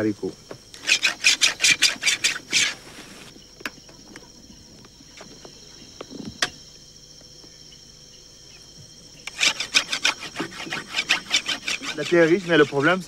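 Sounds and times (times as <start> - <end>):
high insect chirring: 0.0 - 13.0
loud clicks and scrapes: 0.7 - 3.3, 9.2 - 13.0.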